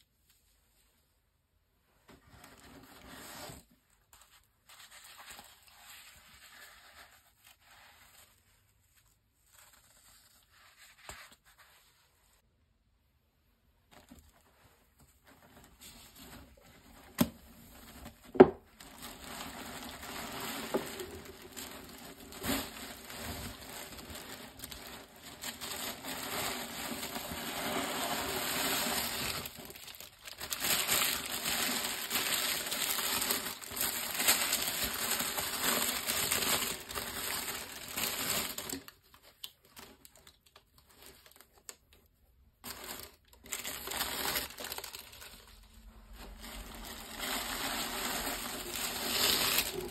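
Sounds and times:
tissue paper and cloth bag rustling: 13.9 - 39.0, 42.6 - 49.9.

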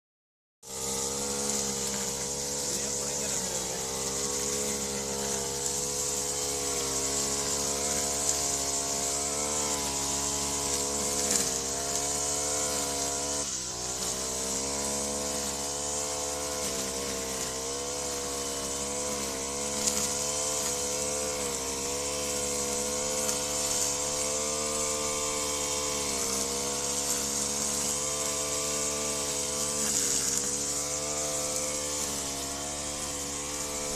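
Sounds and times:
brushcutter engine cutting grass: 0.6 - 33.9.

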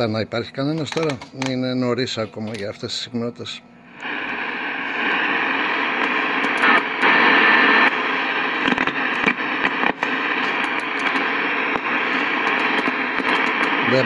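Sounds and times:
radio static hiss: 0.0 - 14.0.

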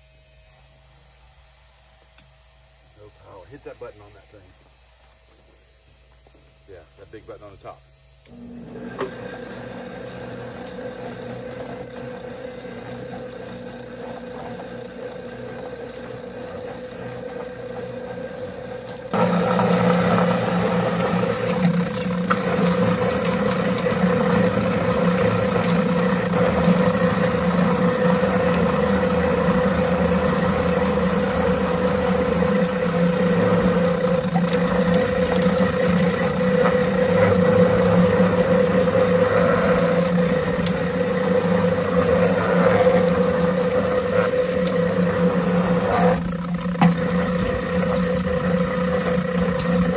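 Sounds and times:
chicken plucker humming: 13.2 - 49.9
hose spraying water: 19.1 - 49.9.

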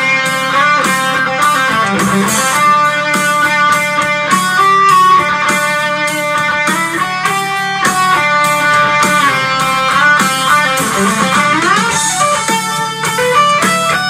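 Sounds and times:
backing track with steady beat: 0.0 - 14.0
overdriven electric guitar lead: 0.0 - 14.0.

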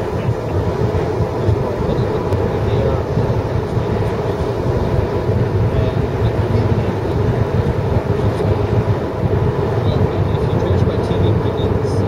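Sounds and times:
road noise inside moving car: 0.0 - 12.0.

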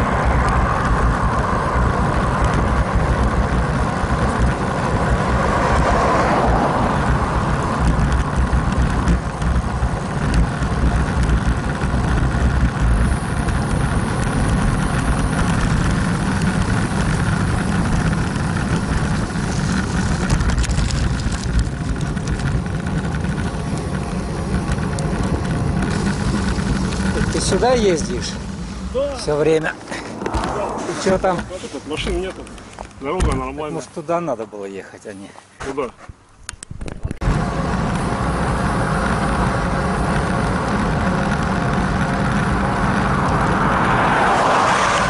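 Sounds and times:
wind buffeting microphone: 0.0 - 33.7
tyre and road noise: 0.0 - 45.0.

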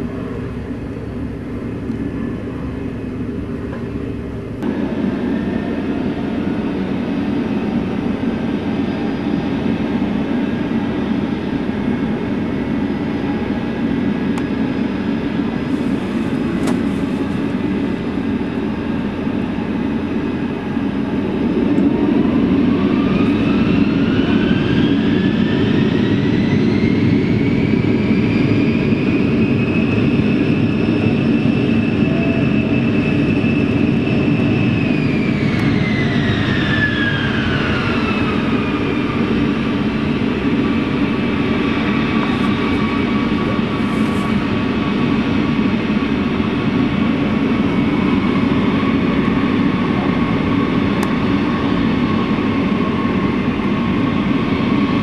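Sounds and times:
jet engine whine: 0.0 - 55.0
jet engines roaring: 0.0 - 55.0.

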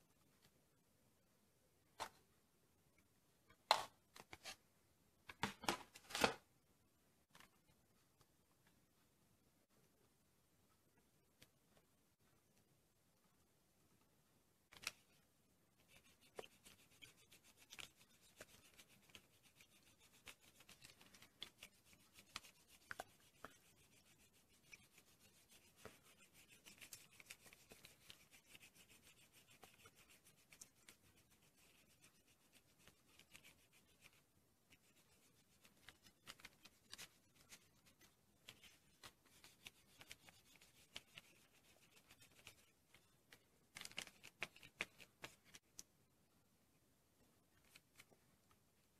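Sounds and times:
eraser rubbing on paper: 15.8 - 42.8.

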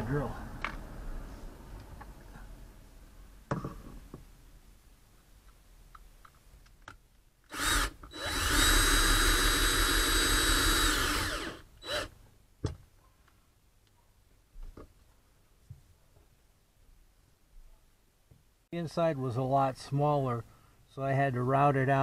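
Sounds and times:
cordless drill running: 7.5 - 12.1.

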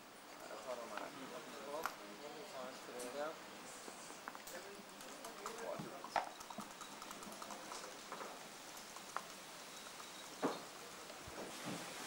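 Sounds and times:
steady hiss: 0.0 - 12.0
checkers and dice clacking on wood: 5.0 - 7.9.

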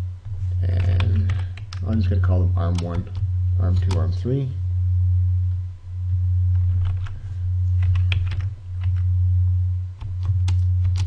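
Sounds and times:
low electrical hum: 0.0 - 11.0
keyboard typing: 6.6 - 7.2, 7.8 - 9.1, 10.0 - 11.0.

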